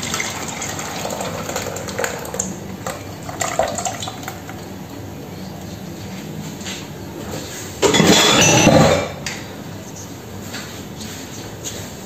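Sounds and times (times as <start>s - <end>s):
kitchenware clattering: 7.8s - 9.5s.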